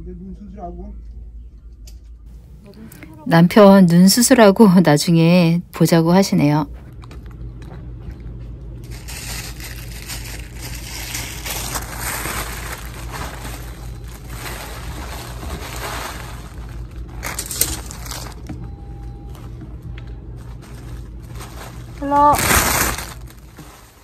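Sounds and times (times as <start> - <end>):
low hum: 0.0 - 24.0
plastic bags crinkling: 8.8 - 18.5, 20.4 - 24.0.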